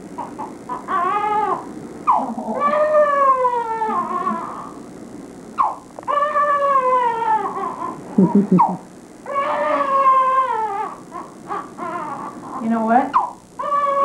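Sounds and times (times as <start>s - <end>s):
newborn baby crying: 0.2s - 4.8s, 5.6s - 14.0s
baby sobbing: 2.4s - 4.8s, 6.1s - 12.4s.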